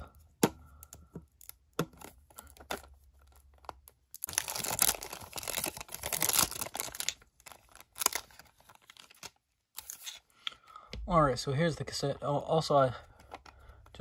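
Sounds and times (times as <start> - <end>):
cellophane crinkling and tearing: 1.4 - 10.3.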